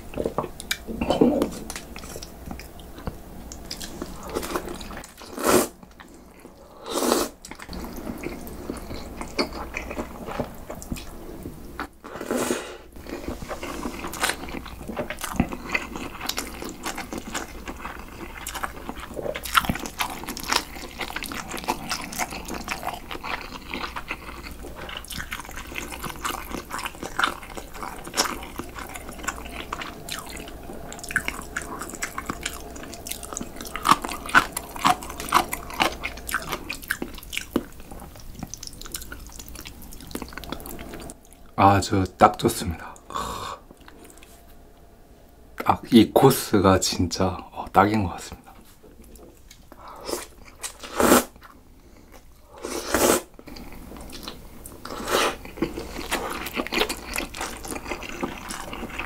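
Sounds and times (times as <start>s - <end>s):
chewing with wet clicks: 0.1s - 0.8s, 1.7s - 5.2s, 7.4s - 11.2s, 13.6s - 41.6s, 53.4s - 59.0s.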